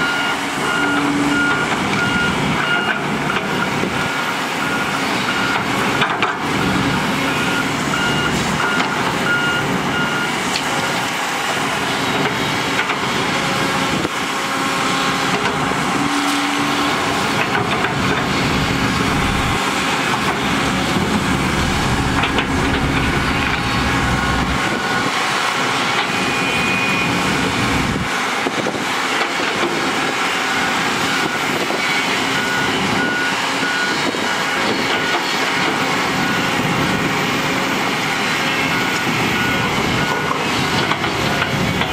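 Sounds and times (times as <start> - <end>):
reversing alarm beeping: 0.0 - 5.9, 6.5 - 11.0, 17.9 - 27.3, 30.2 - 37.0, 38.2 - 41.9
excavator digging: 0.0 - 41.9
heavy machinery diesel engines: 0.0 - 41.9.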